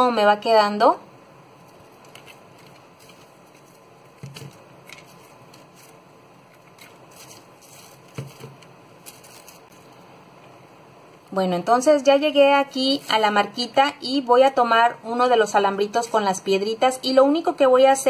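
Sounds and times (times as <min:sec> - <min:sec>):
tape rustling and crinkling: 0:01.6 - 0:10.0.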